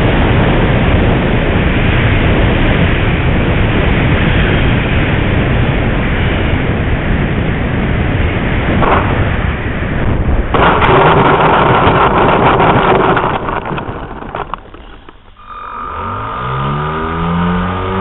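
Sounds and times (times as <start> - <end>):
rushing rattling over dirt: 7.6 - 15.4
model plane motors whining: 14.4 - 18.0.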